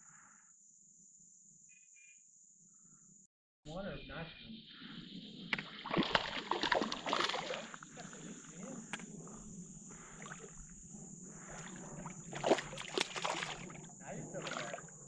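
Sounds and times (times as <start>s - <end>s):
paddle strokes splashing water: 5.6s - 9.1s, 11.3s - 14.9s.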